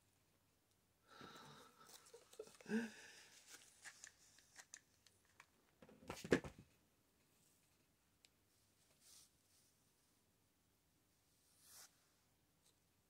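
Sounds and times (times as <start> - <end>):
paper and fabric rustling: 3.2 - 5.4.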